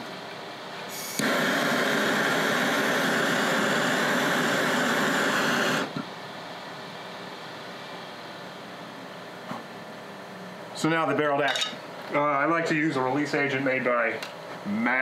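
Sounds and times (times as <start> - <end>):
gas torch flame hissing: 0.9 - 6.1.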